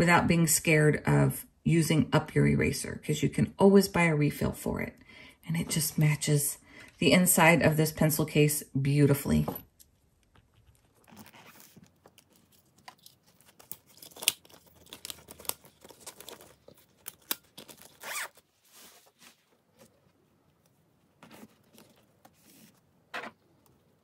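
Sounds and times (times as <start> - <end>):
fabric rustling: 18.0 - 22.9.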